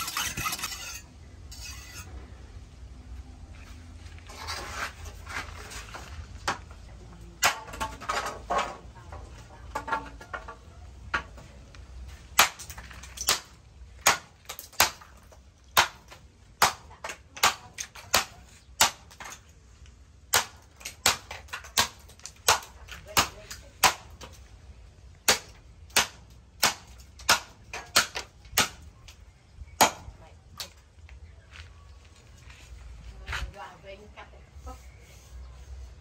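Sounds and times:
billhook chopping bamboo: 12.3s - 19.4s, 20.3s - 24.4s, 25.2s - 28.8s, 29.8s - 30.7s.

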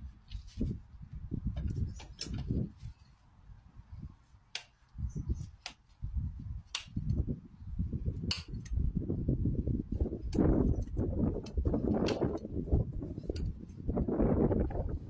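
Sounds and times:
hoof knife clicking cuts: 4.5s - 5.9s, 6.7s - 7.2s, 8.2s - 8.8s.

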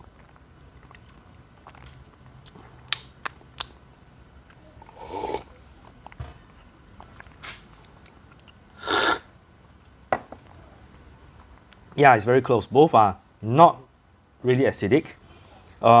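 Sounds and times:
person slurping coffee: 4.8s - 5.5s, 8.8s - 9.3s.

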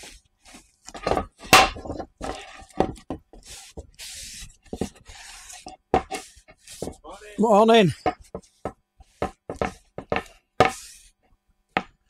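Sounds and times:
cloth rubbing wooden door: 2.0s - 7.4s.

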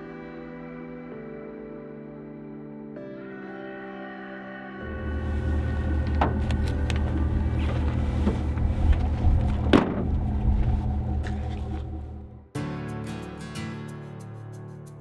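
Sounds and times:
pickup truck idling: 4.9s - 12.4s
tailgate slamming shut: 5.9s - 6.8s, 9.6s - 10.4s.

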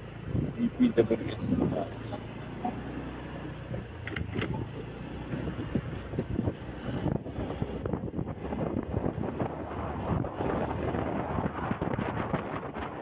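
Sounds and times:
motor scooter engine humming: 0.0s - 13.0s.

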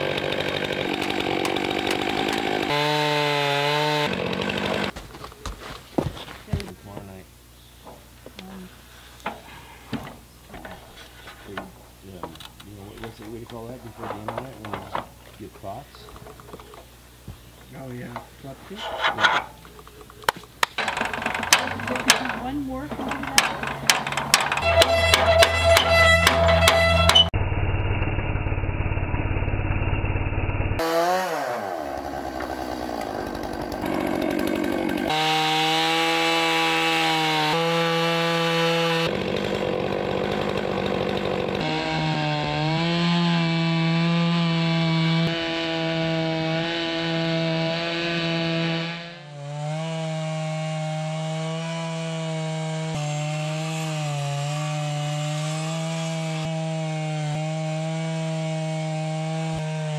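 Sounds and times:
chainsaw cutting through log: 0.0s - 5.0s, 20.6s - 27.3s, 30.8s - 59.9s.

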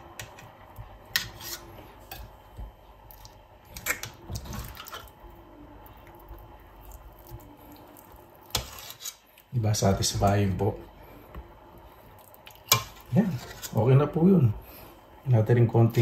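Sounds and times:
metal spoon scraping a pot: 1.1s - 2.2s, 8.5s - 9.3s, 12.7s - 13.9s.

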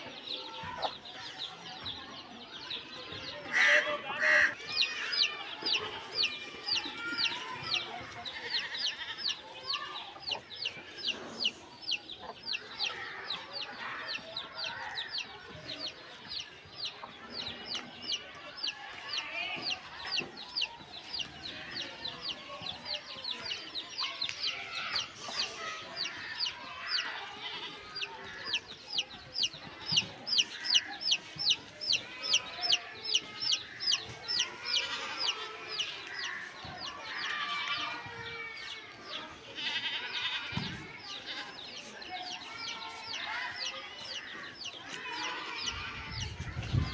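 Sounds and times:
rooster and hen clucking: 3.5s - 15.9s, 24.2s - 37.9s.

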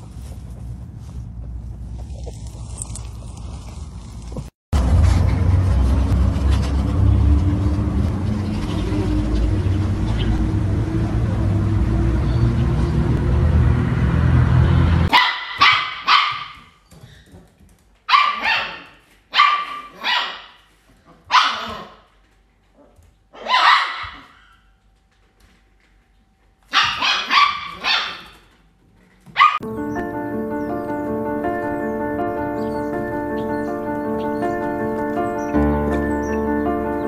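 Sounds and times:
low rumbling noise: 0.0s - 15.1s
dog barking: 15.1s - 16.7s, 18.1s - 20.6s, 21.3s - 22.0s, 23.4s - 24.5s, 26.7s - 28.4s, 29.4s - 29.6s.

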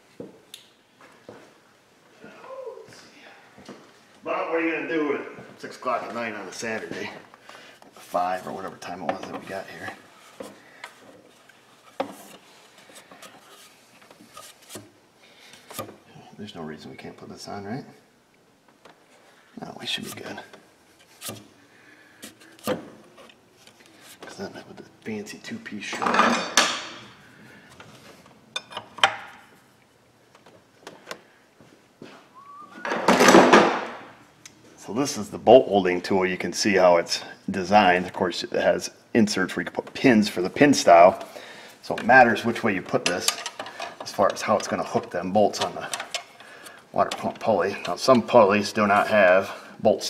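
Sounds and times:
metal tools scraping: 42.9s - 48.3s.

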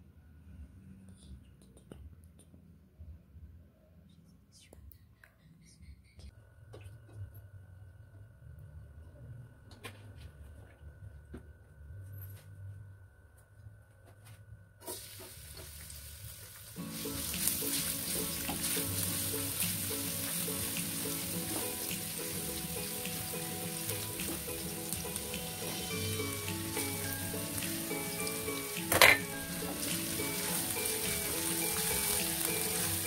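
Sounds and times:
garlic sizzling in hot oil: 14.8s - 33.0s
background music: 16.8s - 33.0s.

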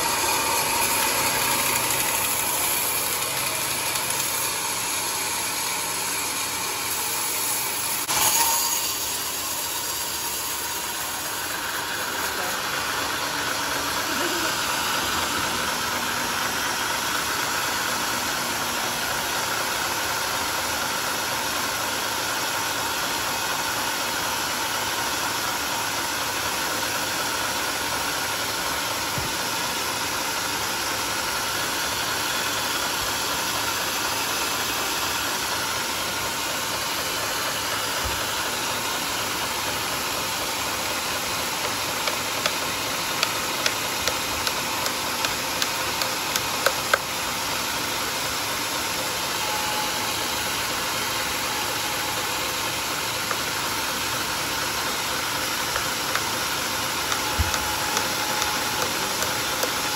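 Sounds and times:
band sawmill running: 0.0s - 59.9s.

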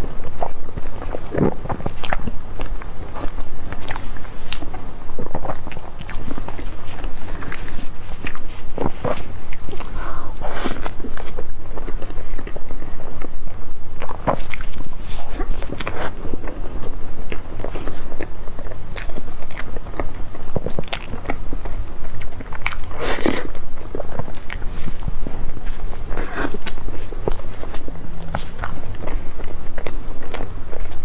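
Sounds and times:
biting and chewing bread: 0.0s - 31.0s.

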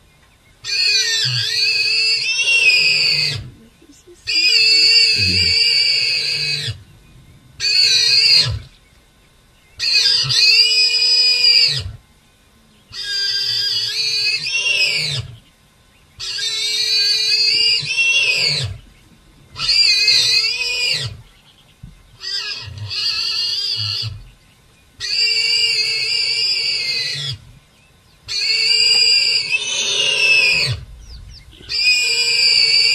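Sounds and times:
warthog squealing: 0.7s - 3.4s, 7.6s - 8.7s, 9.8s - 11.9s, 13.0s - 15.3s, 16.2s - 18.8s, 19.6s - 21.2s, 22.2s - 24.2s, 25.0s - 27.4s, 28.3s - 30.9s, 31.6s - 32.9s.

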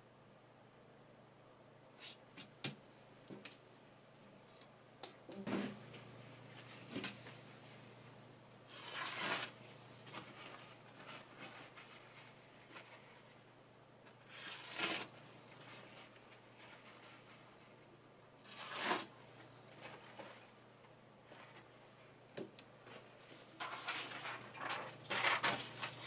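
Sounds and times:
knife slicing paper: 8.7s - 12.0s, 14.2s - 15.2s, 18.4s - 19.1s, 23.6s - 26.0s.

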